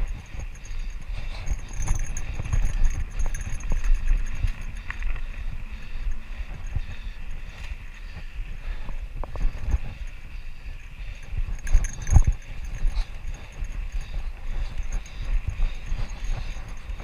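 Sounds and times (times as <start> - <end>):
bike tyre rumble on rocky trail: 0.0 - 17.0
bike knocks and rattles: 11.2 - 17.0.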